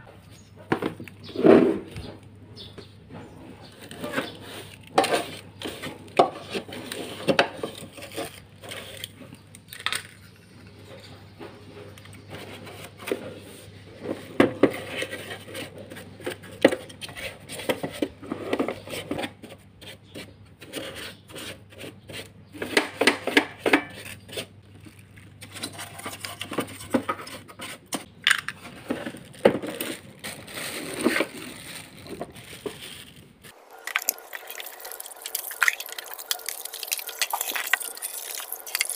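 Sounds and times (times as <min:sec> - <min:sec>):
brush scrubbing plastic: 0:28.6 - 0:38.9.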